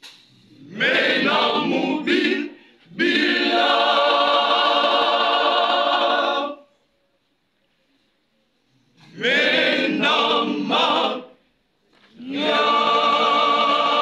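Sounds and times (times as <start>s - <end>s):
women's choir singing: 0.7s - 6.8s, 9.1s - 11.4s, 12.2s - 14.0s.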